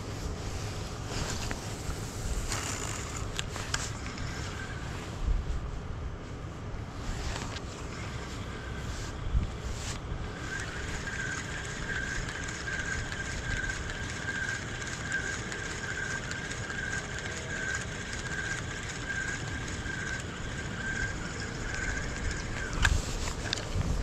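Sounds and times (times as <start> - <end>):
low wind rumble: 0.0 - 24.0
fishing reel whirring: 2.2 - 4.9, 7.4 - 9.1, 10.2 - 23.7.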